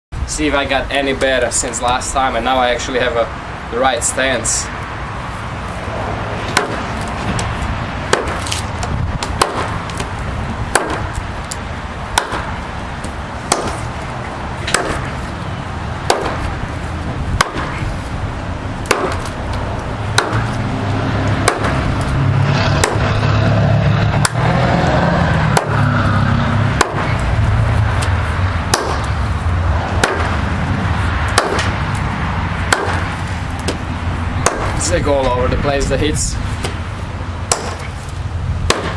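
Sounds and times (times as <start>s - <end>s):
steady low rumble: 0.1s - 38.9s
hatchet chopping log: 6.4s - 7.5s, 8.1s - 14.0s, 14.6s - 15.3s, 16.0s - 16.6s, 17.4s - 17.9s, 18.8s - 22.1s, 22.8s - 23.1s, 25.5s - 25.8s, 26.8s - 27.2s, 28.7s - 29.2s, 30.0s - 30.5s, 31.3s - 32.0s, 32.7s - 35.0s, 37.4s - 38.9s.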